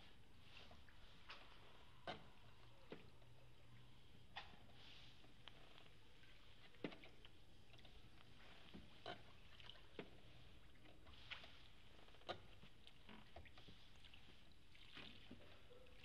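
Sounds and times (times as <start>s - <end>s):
oar splashes and drips: 6.0s - 16.0s.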